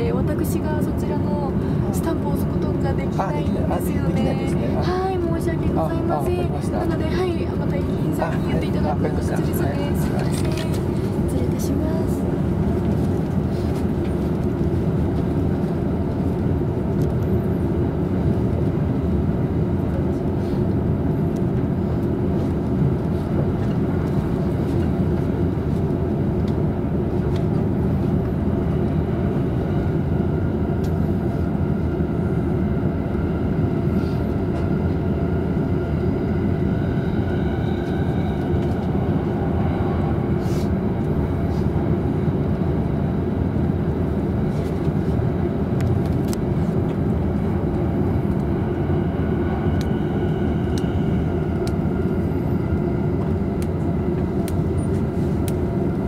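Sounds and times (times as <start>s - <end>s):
train rumbling on rails: 0.0s - 56.0s.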